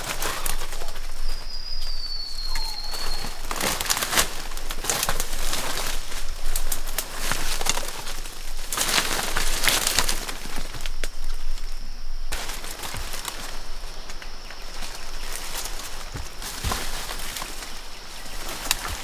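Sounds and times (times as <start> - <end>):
footsteps in dry leaves and twigs: 0.0 - 19.0
faint steady high tone: 0.3 - 3.9.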